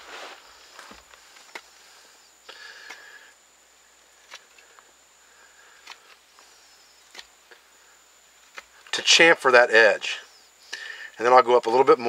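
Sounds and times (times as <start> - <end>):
blade clicking on wood: 5.8 - 6.2.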